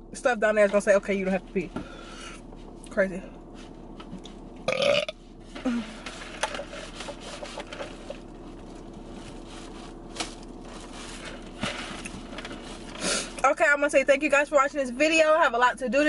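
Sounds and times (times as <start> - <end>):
faint steady hum: 0.0 - 16.0
paper cup rustling and clicking: 6.2 - 9.5.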